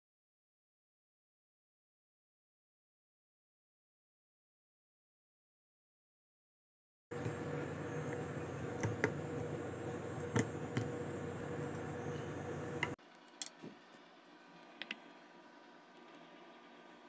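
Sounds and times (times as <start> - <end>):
background hum: 7.1 - 17.0.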